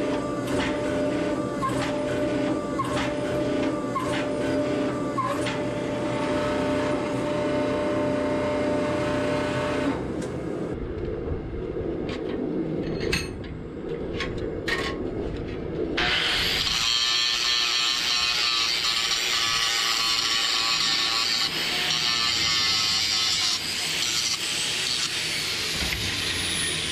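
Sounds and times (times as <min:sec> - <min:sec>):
machine hum: 0:00.0 - 0:26.9
low rumble: 0:10.7 - 0:16.0.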